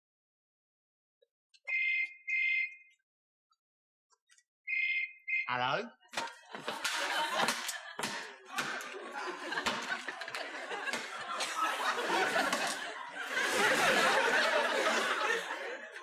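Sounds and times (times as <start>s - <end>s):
studio audience laughing: 6.1s - 16.0s.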